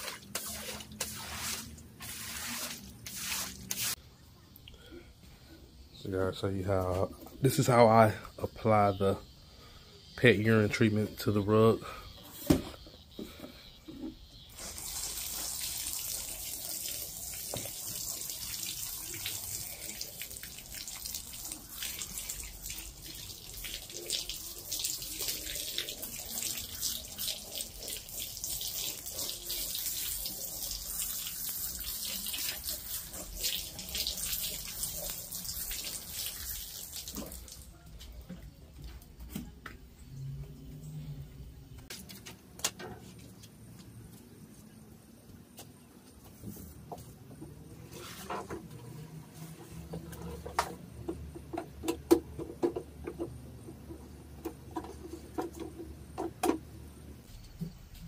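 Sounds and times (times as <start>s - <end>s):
hissing liquid spray: 14.4s - 37.6s.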